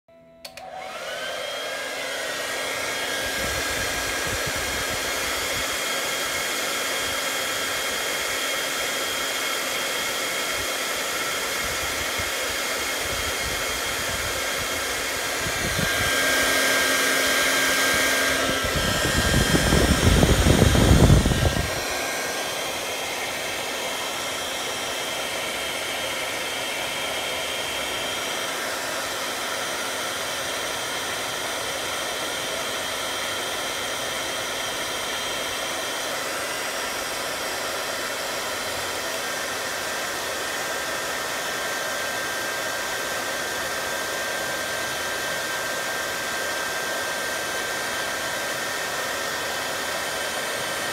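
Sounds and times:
hot-air blower running: 0.1 - 50.9
air stream rushing on microphone: 0.9 - 6.3, 11.6 - 27.4.

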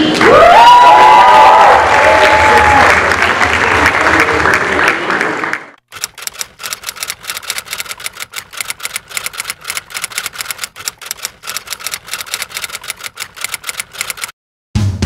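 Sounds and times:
typewriter keys clicking: 5.9 - 14.3.

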